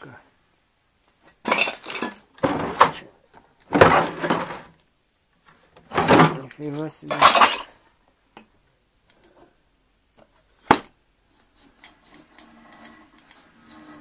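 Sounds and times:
junk scraping: 1.3 - 4.8, 5.6 - 7.8
faint rubbing and rustling: 9.1 - 14.0.

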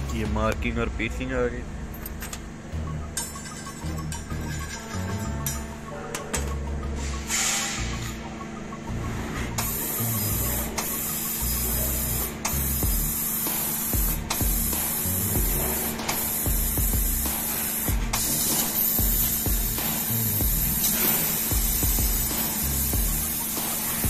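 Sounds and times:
laser cutter gas hiss: 7.0 - 8.3, 9.6 - 24.0.

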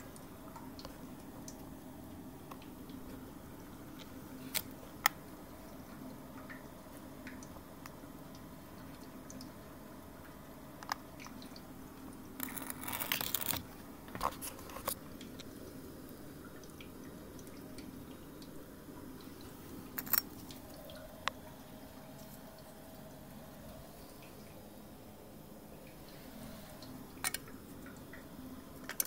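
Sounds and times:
heater humming: 0.0 - 29.0
crackling: 12.3 - 15.5.

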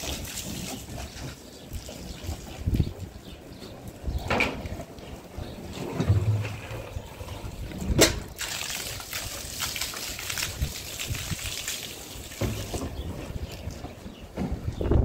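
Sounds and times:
water gushing into plastic can: 0.0 - 0.9, 7.6 - 13.8.

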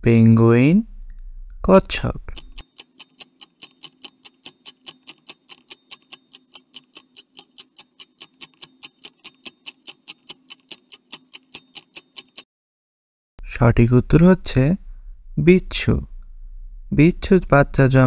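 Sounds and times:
clock ticking: 2.3 - 12.5.

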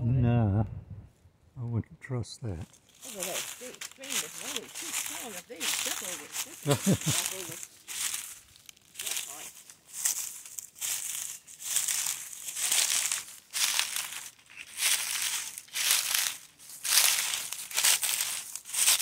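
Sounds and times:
footsteps crunching dry leaves: 2.6 - 19.0.

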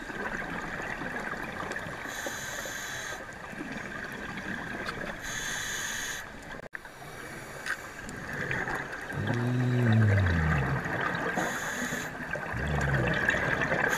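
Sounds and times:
underwater watery hiss: 2.0 - 3.4, 5.2 - 8.3, 9.2 - 12.5.

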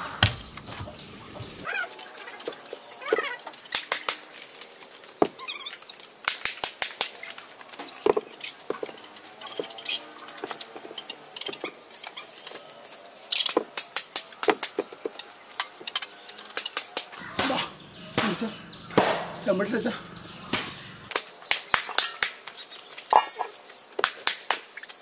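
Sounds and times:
footsteps on gritty ground: 2.4 - 11.8
quick runs of clicks: 3.5 - 5.0
blocks knocking and scraping: 7.8 - 11.8, 13.4 - 15.2.

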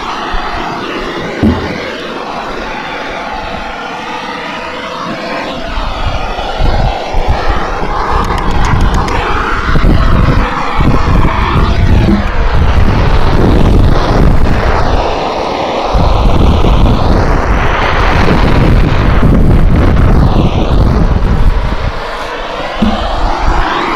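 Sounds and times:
gas blowtorch roaring: 0.0 - 23.9.

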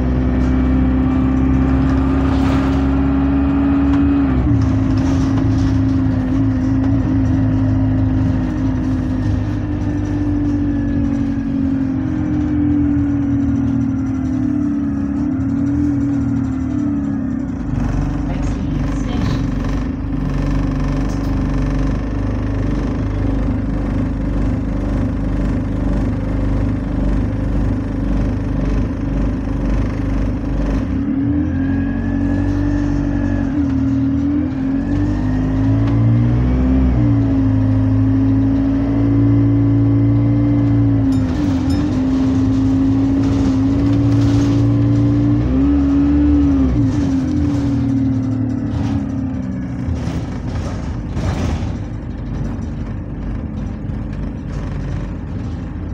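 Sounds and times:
bus diesel engine: 0.0 - 55.9.

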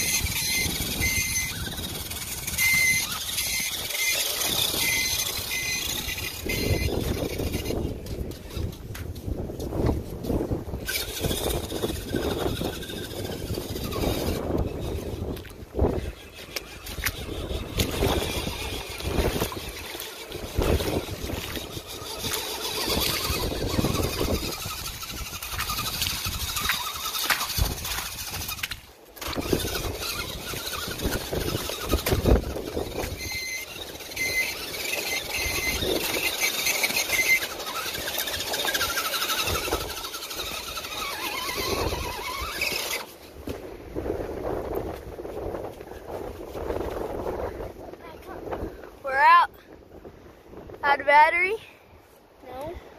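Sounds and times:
rc car motor whining: 0.0 - 44.9
tyres working through mud: 0.0 - 49.5.

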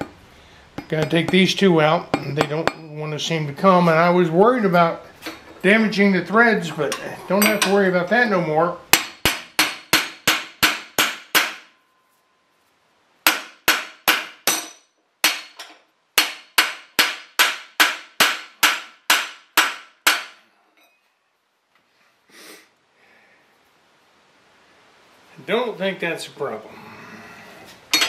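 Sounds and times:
hammer striking metal: 6.9 - 7.8, 8.9 - 11.8, 13.3 - 20.4.

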